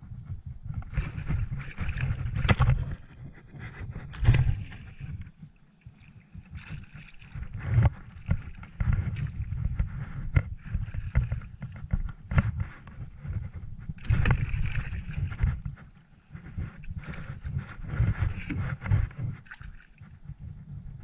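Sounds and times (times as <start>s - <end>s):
water splashing against kayak: 0.2s - 21.0s.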